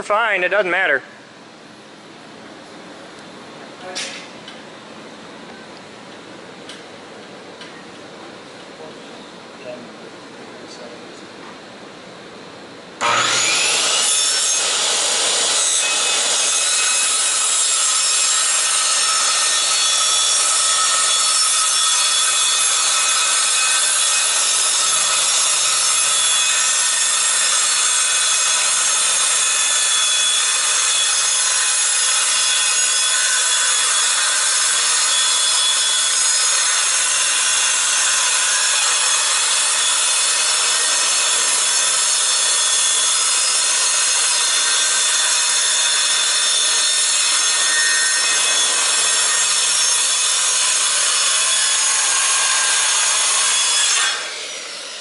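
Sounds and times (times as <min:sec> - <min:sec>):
saw blade spinning down: 0:13.0 - 0:17.0
circular saw cutting plywood: 0:13.0 - 0:55.0.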